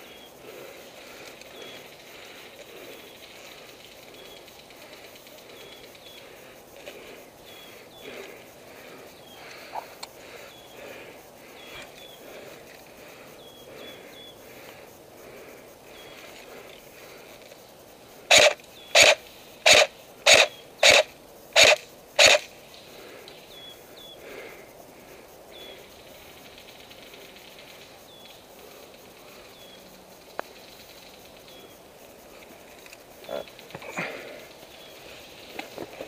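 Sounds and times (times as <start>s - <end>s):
small birds chirping: 0.0s - 35.6s
airsoft rifle shots: 18.3s - 22.5s.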